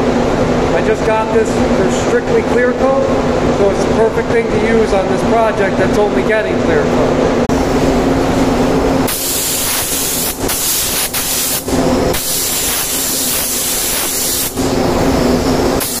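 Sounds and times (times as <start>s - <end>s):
steady hum: 0.0s - 16.0s
spray gun hissing: 9.1s - 16.0s.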